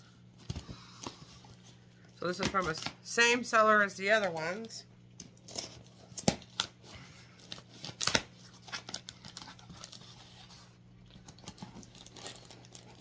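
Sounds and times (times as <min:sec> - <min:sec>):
packaging tearing and crinkling: 0:05.2 - 0:13.0.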